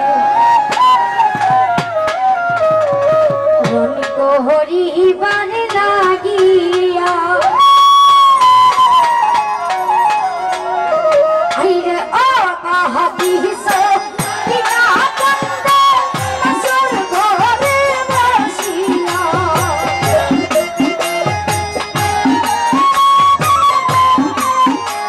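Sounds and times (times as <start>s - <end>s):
wavering lead melody: 13.1s - 25.0s.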